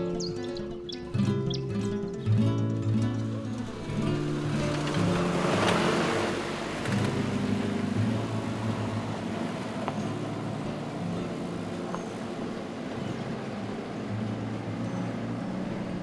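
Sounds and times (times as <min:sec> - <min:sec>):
truck driving past on gravel: 0:03.6 - 0:16.0.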